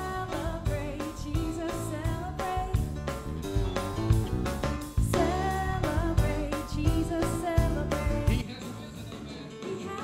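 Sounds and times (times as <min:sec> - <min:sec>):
bass: 0:00.0 - 0:09.4
person singing: 0:09.5 - 0:10.0.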